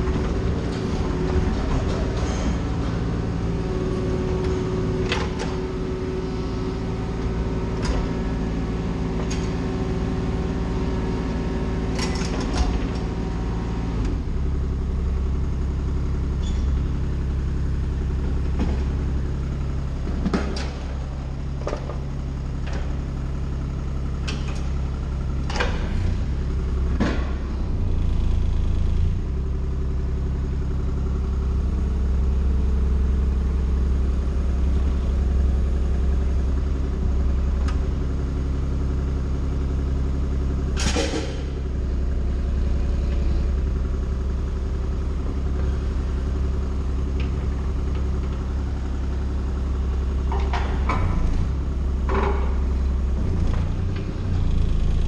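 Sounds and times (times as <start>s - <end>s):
engine humming: 0.0s - 55.0s
sharp clanks and knocks: 40.8s - 41.6s, 50.3s - 51.4s.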